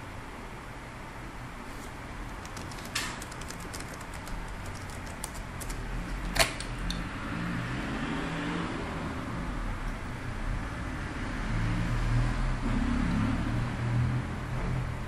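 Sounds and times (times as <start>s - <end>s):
steady hum: 0.9s - 7.0s
laptop keys tapping: 1.8s - 6.6s
loud key press: 1.8s - 6.8s.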